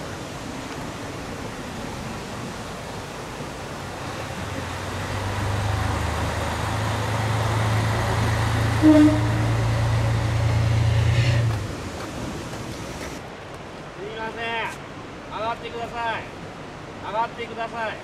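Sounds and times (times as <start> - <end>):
diesel railcar engine humming: 0.0 - 13.2
brief higher tone: 8.8 - 9.6.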